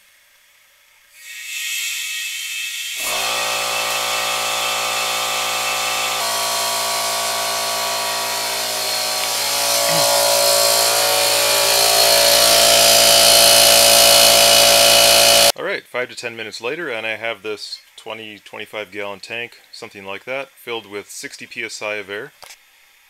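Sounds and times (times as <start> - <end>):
air compressor running: 3.0 - 15.5.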